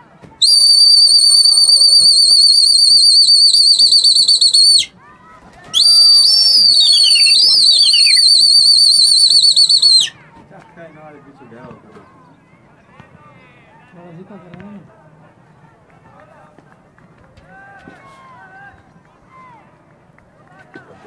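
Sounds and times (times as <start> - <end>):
trilling pea whistle blasts: 0.4 - 4.9, 5.8 - 10.1.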